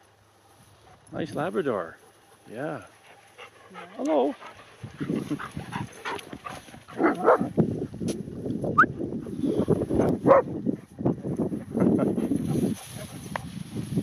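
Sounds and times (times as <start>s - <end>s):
dogs barking and yipping: 2.0s - 7.6s, 9.7s - 11.0s.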